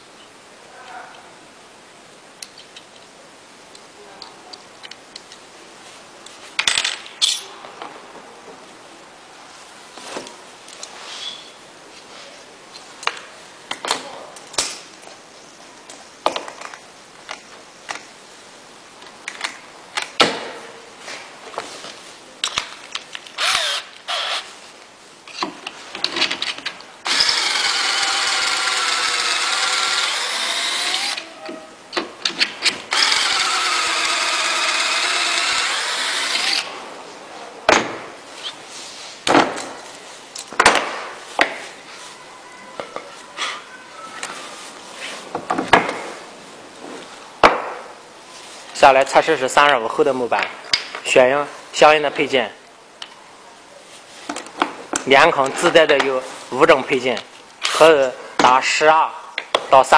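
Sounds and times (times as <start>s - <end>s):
power drill boring into wood: 23.4s - 24.5s, 27.0s - 31.3s, 32.9s - 36.7s.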